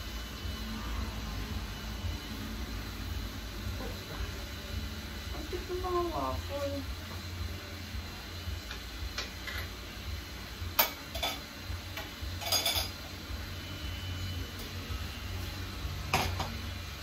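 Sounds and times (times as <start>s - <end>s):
low steady hum: 0.0s - 17.0s
utensils clinking against cookware: 10.8s - 11.5s, 12.4s - 13.0s.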